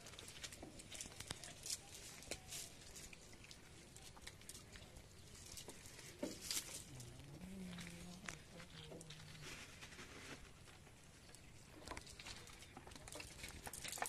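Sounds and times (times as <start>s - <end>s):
fish and net pattering on mud: 0.0s - 14.0s.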